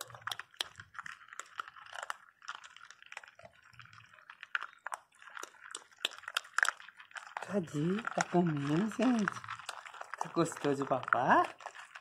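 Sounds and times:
dogs crunching dry kibble: 0.0s - 12.0s.

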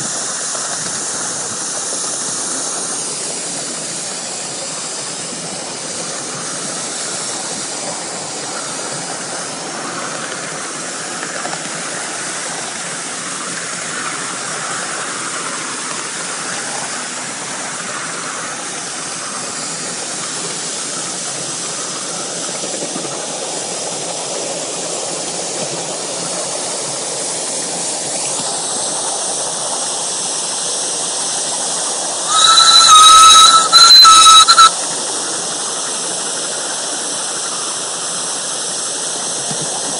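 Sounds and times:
steam hissing: 0.0s - 39.9s
steam whistle blasts: 32.3s - 34.8s.

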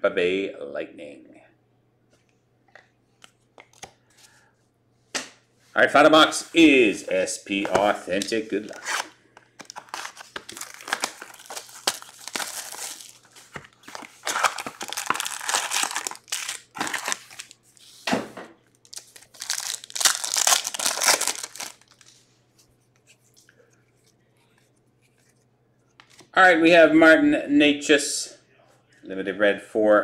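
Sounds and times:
foil wrappers ripping and crinkling: 8.6s - 17.8s, 18.8s - 22.1s.

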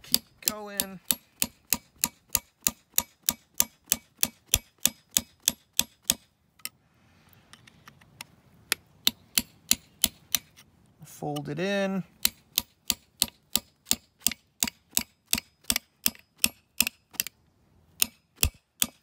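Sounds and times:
hammer tapping punch on steel: 0.0s - 6.2s, 9.0s - 10.5s, 12.2s - 17.3s, 18.0s - 19.0s.

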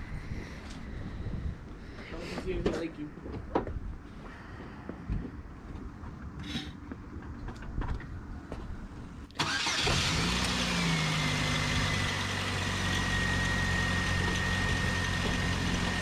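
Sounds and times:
car engine starting and idling: 9.2s - 16.0s.

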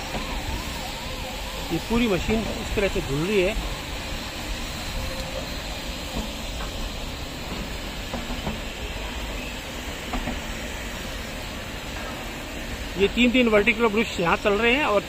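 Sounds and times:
water jets and brushes hissing: 0.0s - 15.0s
faint knocks from rolling coaches: 7.5s - 8.7s, 10.1s - 10.5s.

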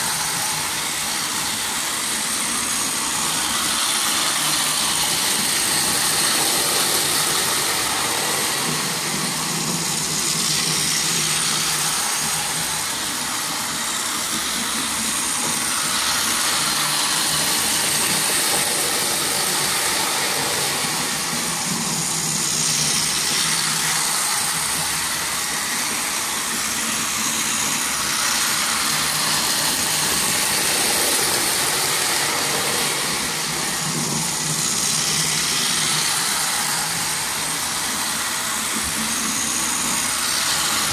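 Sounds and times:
toy train motors whirring: 0.0s - 40.9s.

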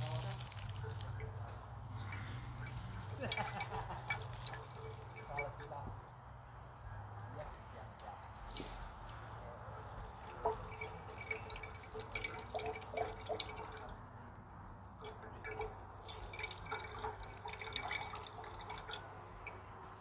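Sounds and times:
juice dripping into steel cup: 0.0s - 6.1s, 8.0s - 20.0s.

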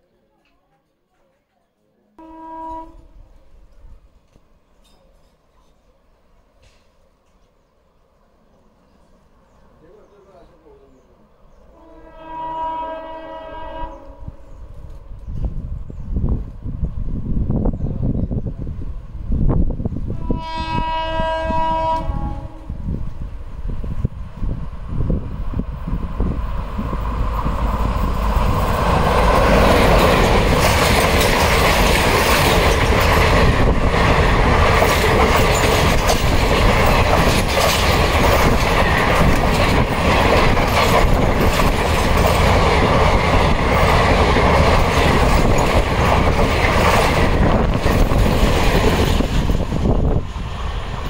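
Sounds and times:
train passing at speed: 5.6s - 51.0s
wheels clattering over rail joints: 27.6s - 49.7s.

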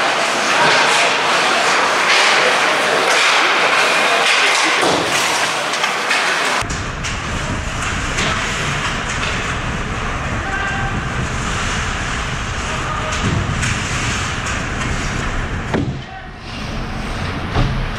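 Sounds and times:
heavy low rumble: 6.6s - 17.9s.

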